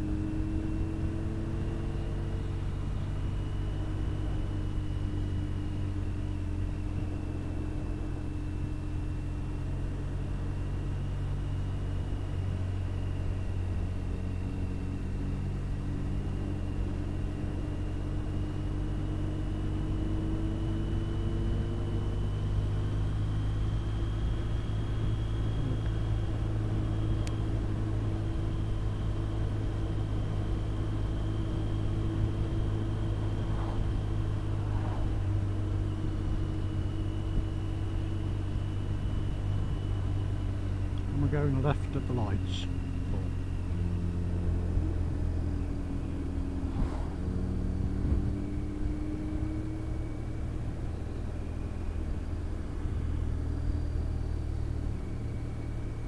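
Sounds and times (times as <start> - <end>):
motorcycle engine cruising: 0.0 - 56.0
road noise: 0.0 - 56.0
wind noise: 46.6 - 49.4.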